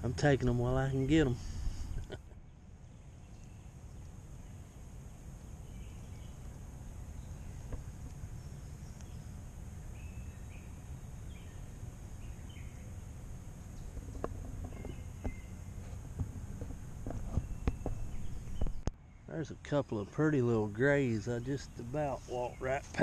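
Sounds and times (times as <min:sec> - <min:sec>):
bird chirps: 0:00.9 - 0:15.9, 0:17.1 - 0:20.4.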